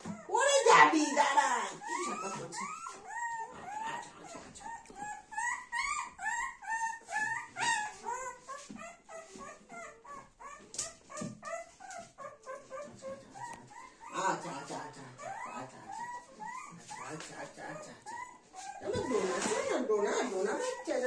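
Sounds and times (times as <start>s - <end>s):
puppy squeaking and whimpering: 0.0s - 21.0s.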